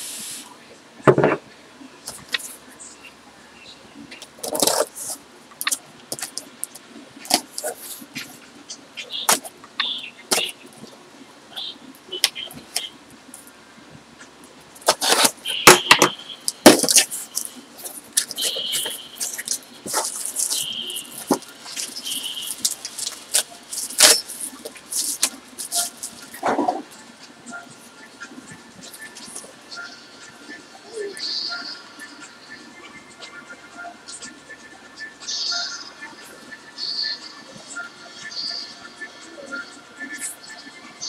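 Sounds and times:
packing material crinkling: 4.4s - 6.5s, 14.8s - 27.0s
blade slitting packing tape: 14.9s - 15.4s, 22.6s - 24.4s.

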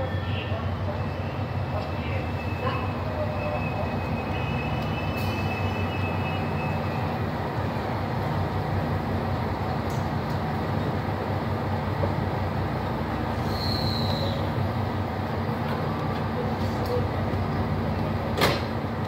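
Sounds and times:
train brake squeal: 0.0s - 7.2s, 13.3s - 14.5s
diesel train engine drone: 0.0s - 19.0s.

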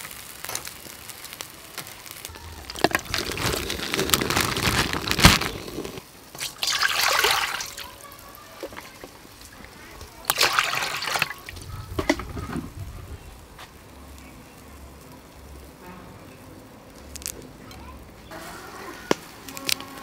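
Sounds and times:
water splashing into metal basin: 6.3s - 8.0s, 10.2s - 12.5s.

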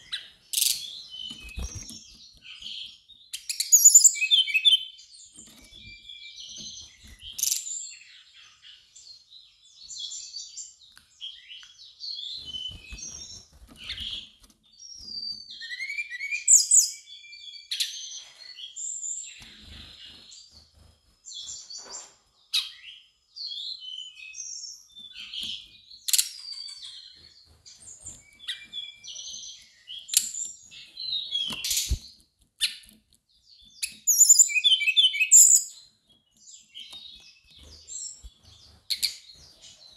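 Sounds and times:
bird chirping and warbling: 0.0s - 39.9s.

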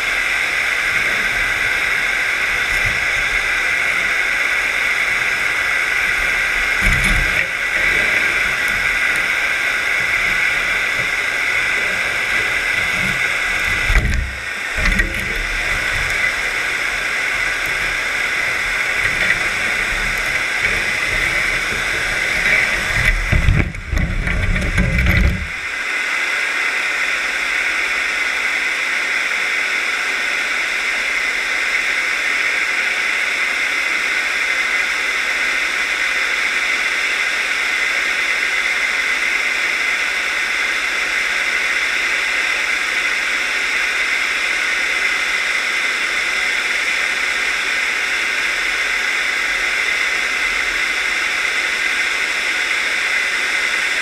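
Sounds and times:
dredge rumbling over gravel: 0.0s - 25.7s
water rushing hiss: 0.0s - 54.0s.

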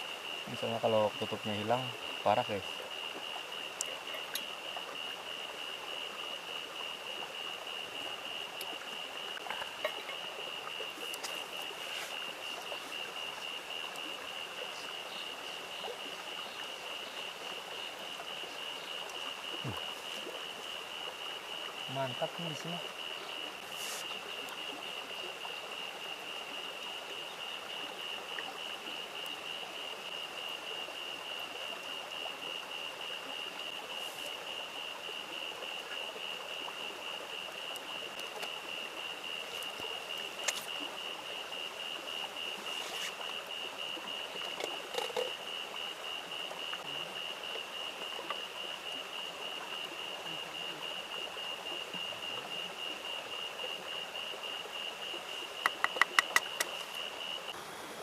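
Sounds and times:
stream running: 0.0s - 58.0s.

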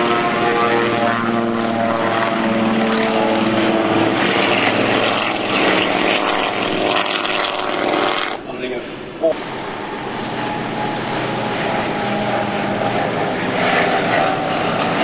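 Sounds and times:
plane passing with propeller rush: 0.0s - 15.0s
propeller plane engines: 0.0s - 15.0s.

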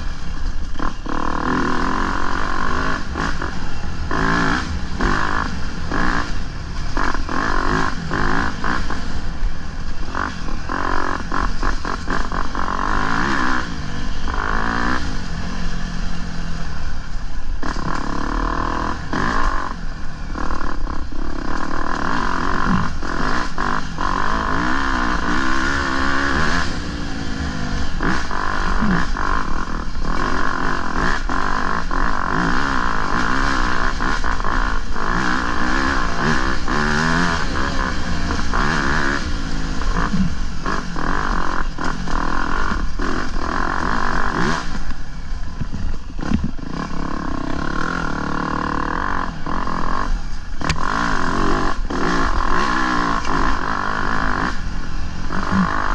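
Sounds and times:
dirt bike engine revving: 0.0s - 55.9s
bike knocking and rattling: 20.4s - 54.6s.

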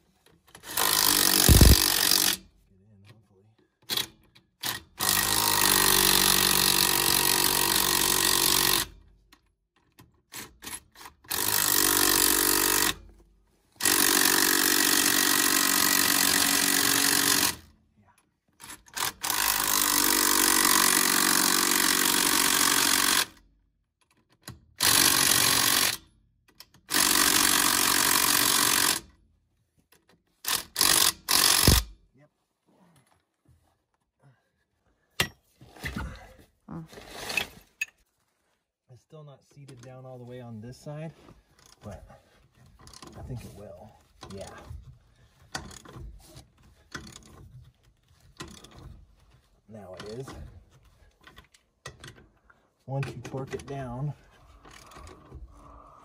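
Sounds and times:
impact wrench bursts: 0.6s - 2.5s, 3.9s - 9.0s, 10.4s - 13.1s, 13.8s - 17.6s, 18.6s - 23.4s, 24.8s - 26.1s, 26.8s - 29.1s, 30.4s - 32.0s.

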